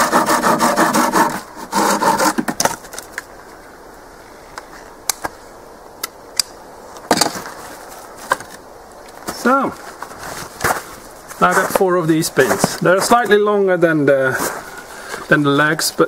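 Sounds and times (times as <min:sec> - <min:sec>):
hand saw cutting wood: 0:00.0 - 0:02.7.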